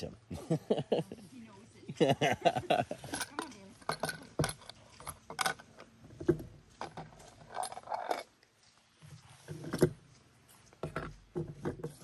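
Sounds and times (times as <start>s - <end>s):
metal camp stove parts clicking: 3.0s - 5.9s.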